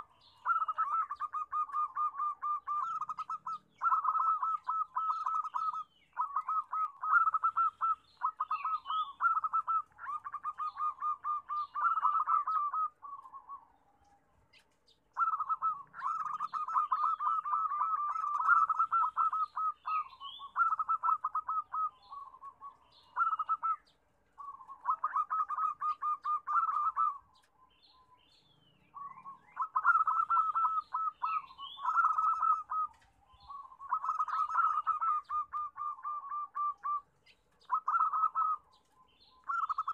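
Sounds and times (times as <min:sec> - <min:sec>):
doves cooing: 0:00.0 - 0:27.6, 0:28.3 - 0:39.9
small birds chirping: 0:00.0 - 0:39.9.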